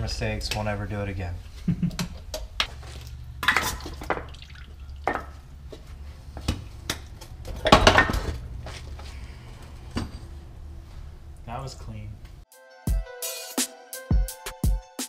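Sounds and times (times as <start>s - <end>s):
steady low hum: 4.7s - 12.4s
metal clanks and knocks: 6.4s - 8.6s, 9.6s - 10.5s.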